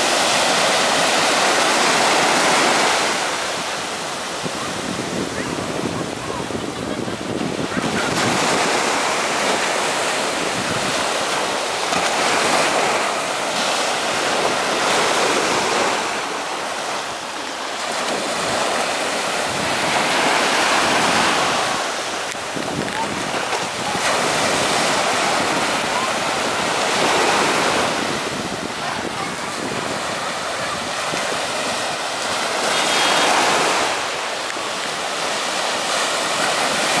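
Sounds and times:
small waves breaking on sand: 0.0 - 37.0.

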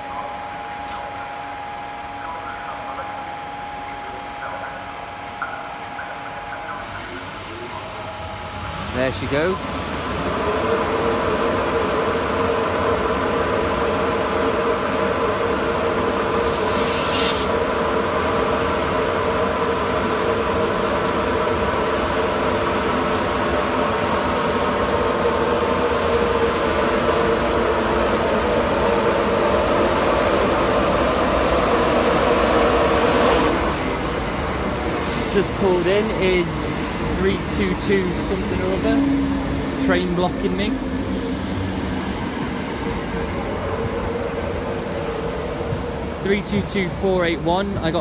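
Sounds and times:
electric locomotive whine: 0.0 - 48.0
brief hiss: 16.4 - 17.5.

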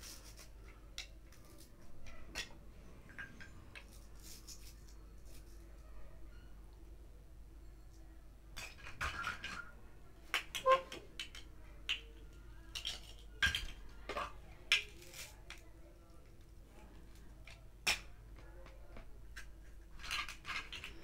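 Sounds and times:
plastic toy pieces clacking: 0.0 - 5.7, 8.6 - 9.7, 10.3 - 15.7, 17.4 - 21.0.

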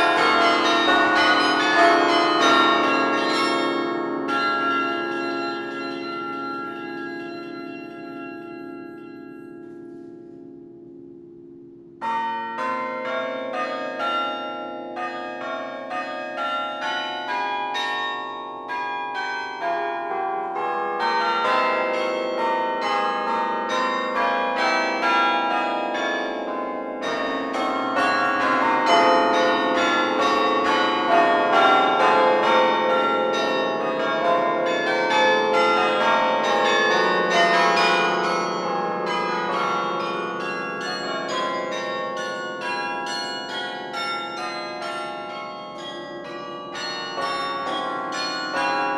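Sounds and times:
carillon bells ringing: 0.0 - 9.9, 11.7 - 48.9.

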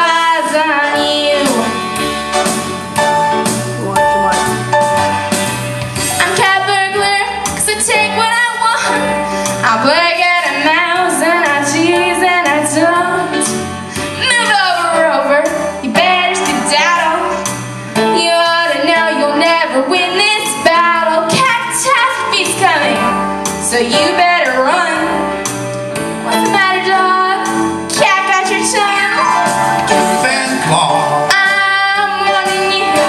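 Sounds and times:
woman singing into a microphone: 0.0 - 1.8, 6.2 - 17.4, 18.0 - 25.2, 26.2 - 29.4, 31.3 - 33.0
keyboard accompaniment: 0.0 - 33.0
repeating bass line: 1.5 - 7.2.

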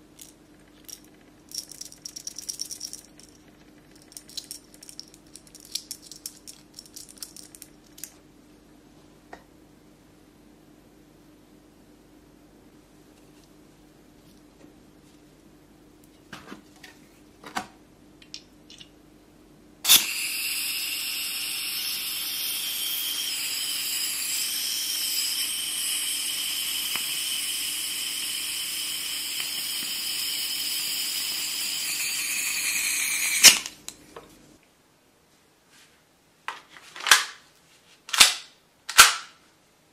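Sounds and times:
gas hiss with high whine: 19.9 - 33.6.

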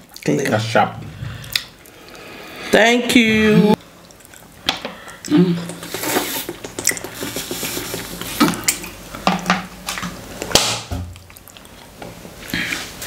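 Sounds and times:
person humming low: 3.2 - 3.8.

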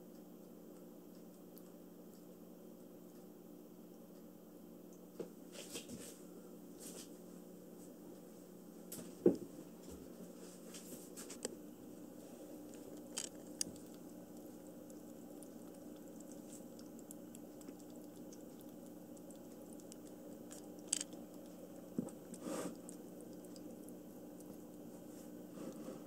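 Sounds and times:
kitten lapping water: 11.5 - 25.8
fountain pump hum: 12.1 - 25.7.

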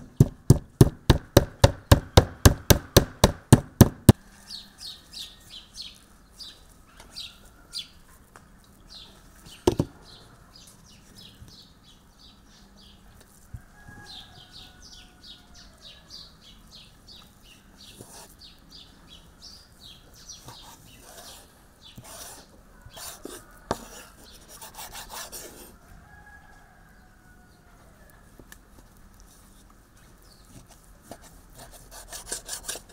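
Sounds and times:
knife sawing through fat: 20.6 - 25.8, 31.6 - 32.9.

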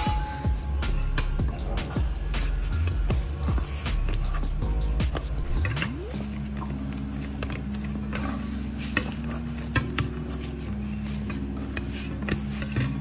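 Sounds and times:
hands kneading dough: 0.0 - 13.0
soft background music: 0.0 - 13.0.

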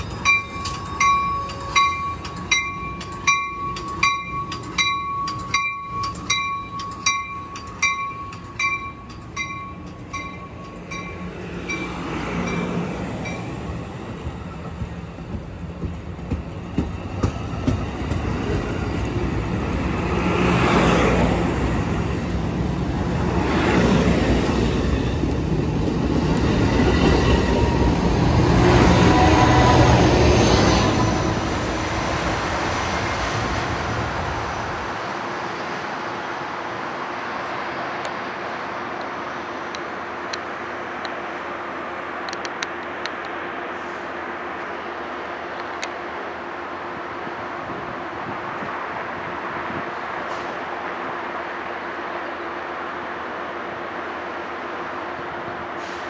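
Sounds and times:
bell ringing: 0.0 - 13.5
train wheels clattering on rails: 0.0 - 32.2.

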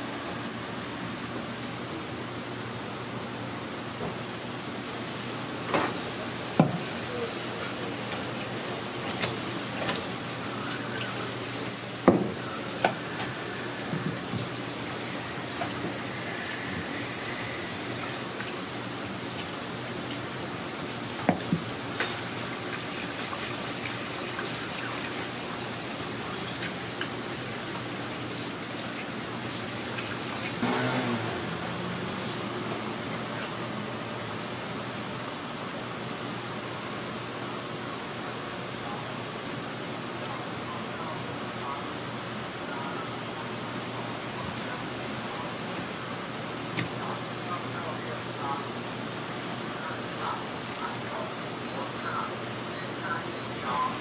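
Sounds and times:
water spraying from nozzle: 4.3 - 32.4.

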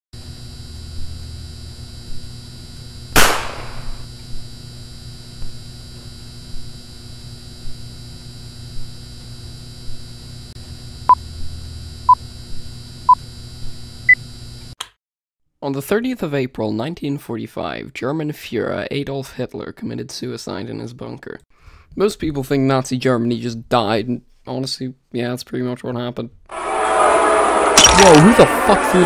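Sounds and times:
loud sharp crack: 3.2 - 4.1, 26.6 - 28.5.

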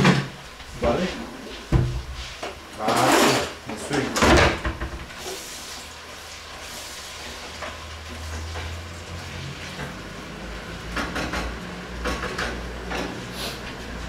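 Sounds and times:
food sizzling in a pan: 5.0 - 12.0.

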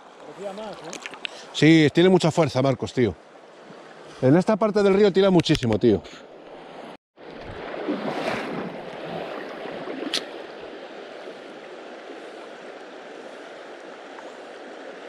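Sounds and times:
river current rushing: 6.6 - 15.0.

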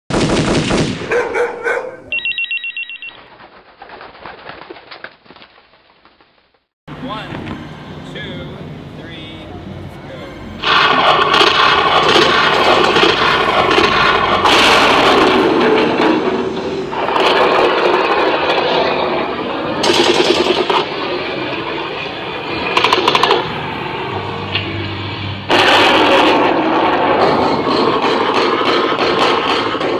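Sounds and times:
telephone ringing: 2.1 - 3.3
crackling rustling noise: 3.2 - 6.7
dense noise from amplifiers: 6.9 - 28.7
rapid rattling pulses: 10.6 - 23.6
loud noisy burst: 10.6 - 29.9.

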